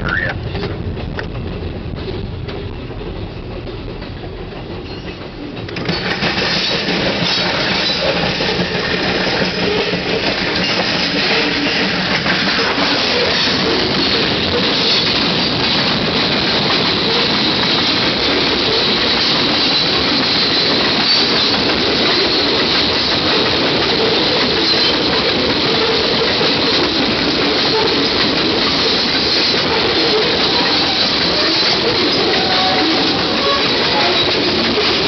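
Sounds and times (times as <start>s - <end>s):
freight train wheels clattering: 0.0s - 35.0s.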